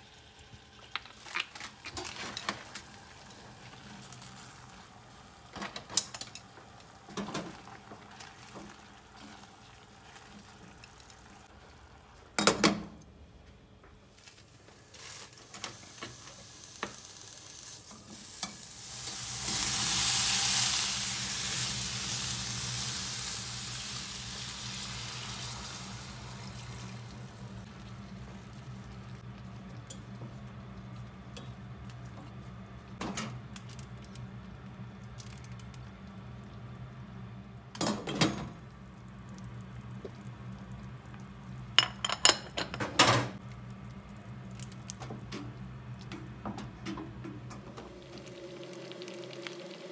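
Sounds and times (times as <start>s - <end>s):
meat sizzling in a frying pan: 14.9s - 29.3s, 47.9s - 49.9s.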